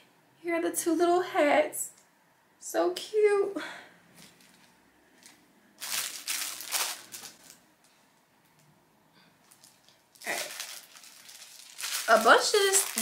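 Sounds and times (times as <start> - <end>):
plastic packaging crinkling: 4.2 - 7.7, 9.4 - 13.0.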